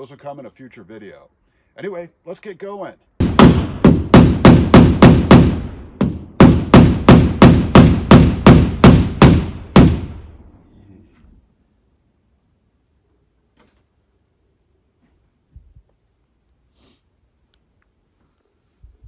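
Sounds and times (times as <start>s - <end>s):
hammer driving nails into wood: 3.2s - 10.1s.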